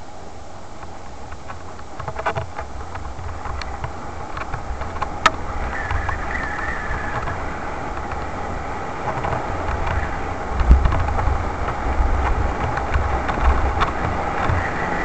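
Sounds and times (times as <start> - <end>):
wind rumble on microphone: 0.0 - 15.0
bike rattles and knocks: 0.8 - 15.0
short wavering squeal: 5.6 - 7.4.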